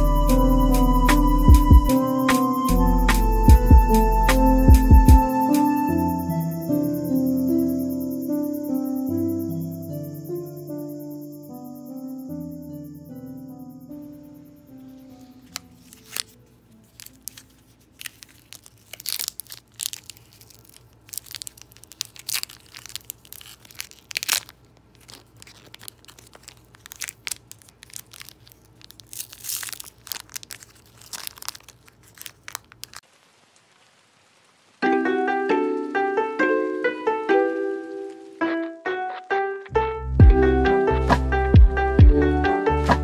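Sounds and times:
plastic wrapper crinkling: 0:14.9 - 0:33.9, 0:37.6 - 0:38.5.

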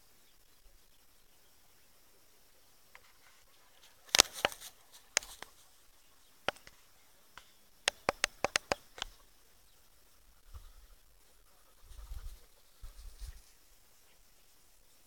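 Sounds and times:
sharp clicks or taps: 0:07.4 - 0:09.1.

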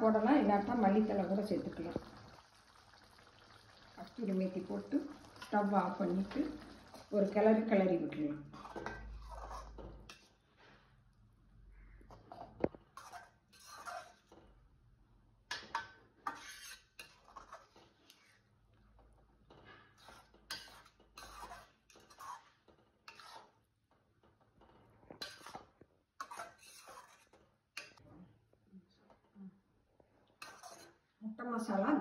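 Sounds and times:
ladle scraping metal pan: 0:08.4 - 0:10.8, 0:12.3 - 0:14.4, 0:15.5 - 0:18.4, 0:19.5 - 0:23.6, 0:24.6 - 0:28.0, 0:30.4 - 0:31.0.

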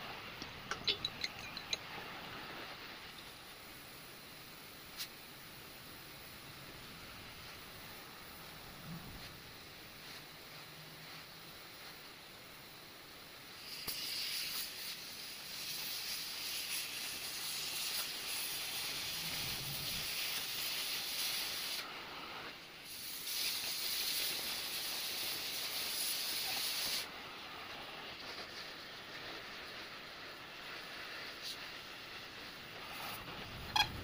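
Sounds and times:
steady hissing: 0:00.0 - 0:34.0.

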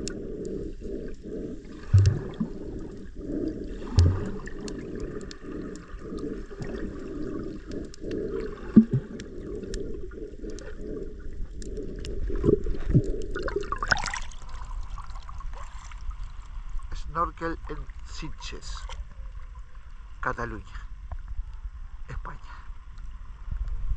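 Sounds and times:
faint clicks: 0:00.0 - 0:13.4
muffled underwater water noise: 0:00.0 - 0:23.9.

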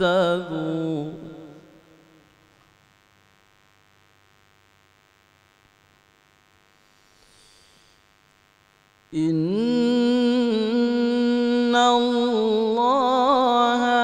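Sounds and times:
man chanting melodically: 0:00.0 - 0:02.2, 0:09.1 - 0:14.0
faint steady hum: 0:00.0 - 0:14.0.

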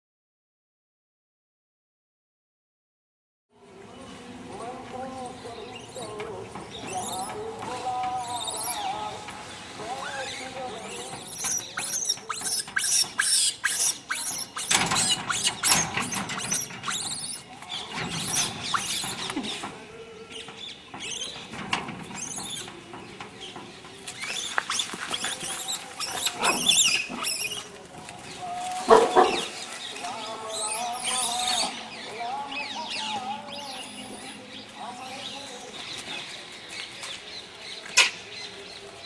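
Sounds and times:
animal squeaks and chirps: 0:06.7 - 0:07.4, 0:08.2 - 0:08.9, 0:10.0 - 0:17.5, 0:18.1 - 0:19.6, 0:24.2 - 0:27.7, 0:30.6 - 0:31.7
loud animal cry: 0:10.9 - 0:17.5, 0:24.7 - 0:27.7.

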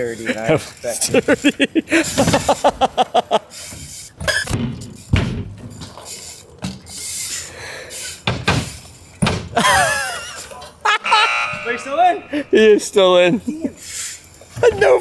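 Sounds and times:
bike tyres rolling: 0:00.0 - 0:10.8, 0:12.6 - 0:15.0
bike thumping on ramps: 0:02.0 - 0:02.9, 0:03.6 - 0:07.0, 0:08.2 - 0:09.9.

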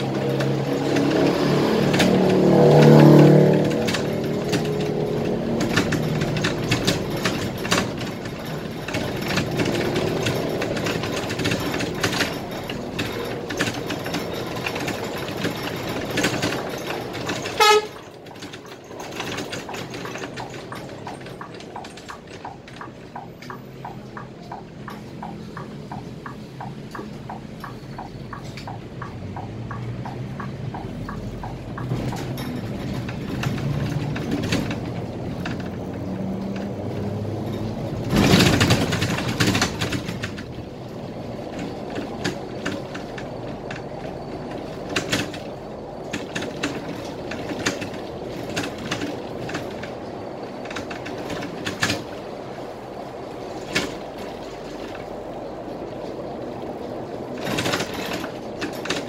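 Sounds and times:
bus engine running: 0:00.0 - 0:59.0
regular ticking: 0:00.3 - 0:59.0
horn blast: 0:17.6 - 0:18.0.

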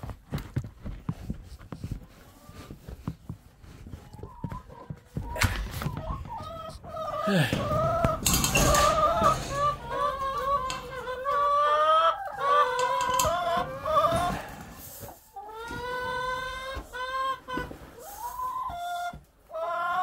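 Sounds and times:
chickens clucking: 0:01.8 - 0:20.0.

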